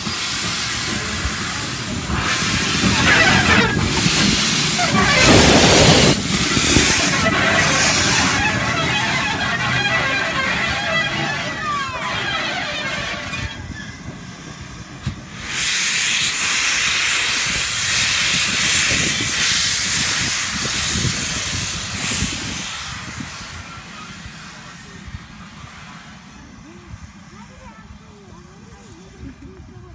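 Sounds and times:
locomotive exhaust beats: 0.0s - 22.7s
steam hissing: 0.0s - 29.1s.

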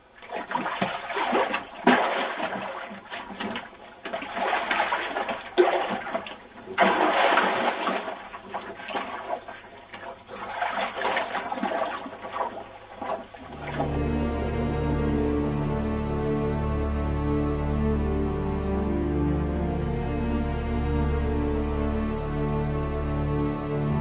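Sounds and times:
water splashing and churning: 0.0s - 14.0s.

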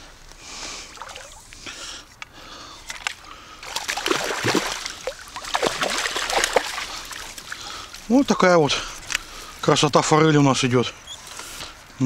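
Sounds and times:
fish thrashing and splashing: 2.9s - 8.1s.

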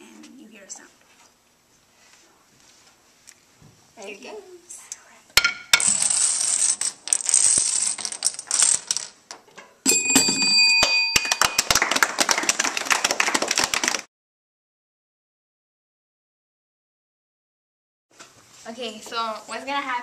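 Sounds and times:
balls rolling along a bench: 5.5s - 10.7s
plastic dominoes clattering: 5.8s - 9.3s
bell-like chime: 9.9s - 11.8s
people clapping: 10.8s - 14.1s.

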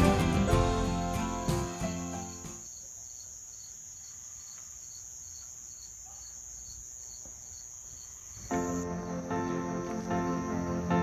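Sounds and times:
music: 0.0s - 2.6s, 8.5s - 11.0s
crickets chirping: 0.9s - 11.0s.

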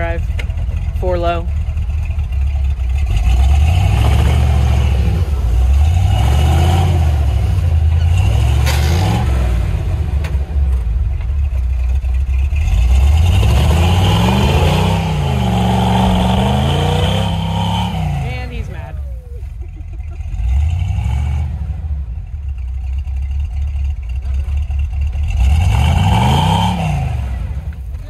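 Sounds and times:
truck engine revving: 0.0s - 28.0s.

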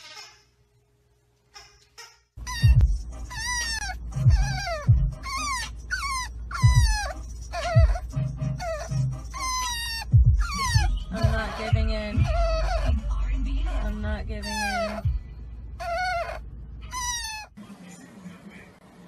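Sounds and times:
puppy whining: 2.4s - 15.2s, 15.8s - 17.6s
car rumble: 2.7s - 17.3s.

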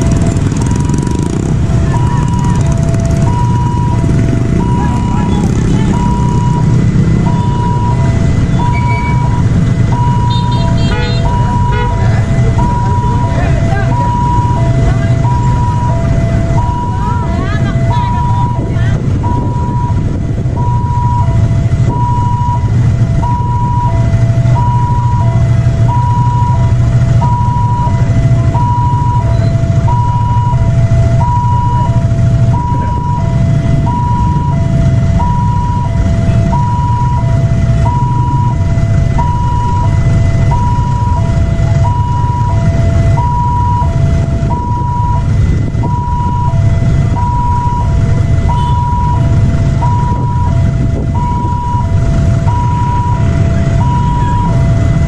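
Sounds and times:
idling engines rumbling: 0.0s - 55.0s
two-tone level-crossing alarm: 0.0s - 55.0s.

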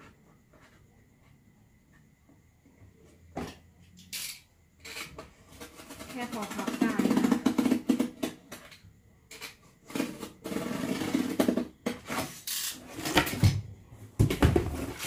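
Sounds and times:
cardboard box thumps: 14.2s - 15.0s.

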